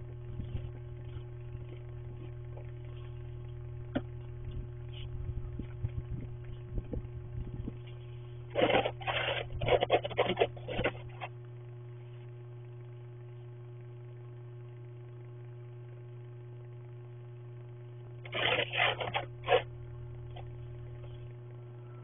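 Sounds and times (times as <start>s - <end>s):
steady low hum: 0.0s - 22.0s
snow brush scraping windshield: 7.9s - 11.3s, 18.3s - 19.7s.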